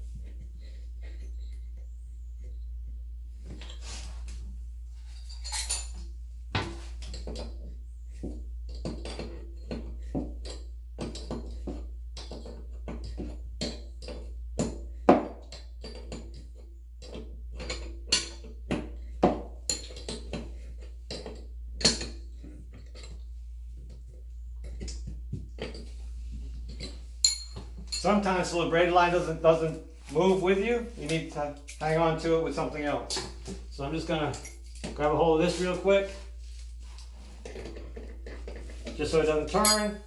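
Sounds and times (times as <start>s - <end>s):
wrench clanking on metal fittings: 5.2s - 6.0s, 26.7s - 28.2s, 37.5s - 40.0s.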